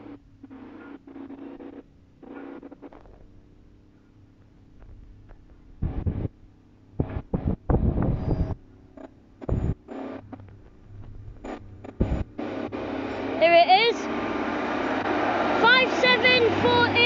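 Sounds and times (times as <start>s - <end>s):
faint low train hum: 1.8s - 17.0s
wind buffeting microphone: 4.8s - 6.4s, 7.0s - 8.6s, 10.4s - 13.3s.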